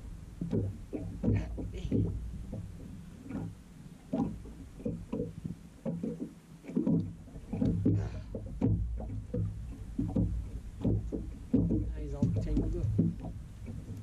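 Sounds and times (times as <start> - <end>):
waves slapping against boat hull: 0.0 - 14.0
low rumble: 7.4 - 14.0.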